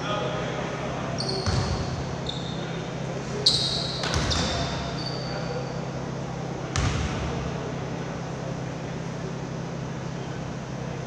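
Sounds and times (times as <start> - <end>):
low hum of gym: 0.0 - 11.0
sneaker squeaks: 1.1 - 6.0
basketball bouncing on wooden floor: 1.4 - 1.8.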